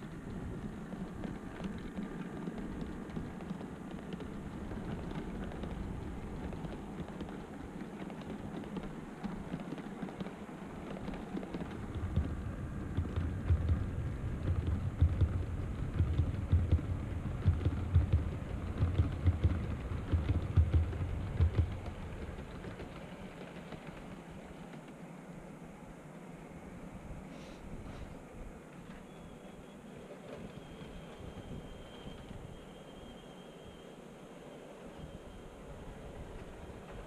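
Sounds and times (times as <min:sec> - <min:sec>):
wheels clattering over rail joints: 0:00.0 - 0:25.1
model train rumbling: 0:00.0 - 0:37.0.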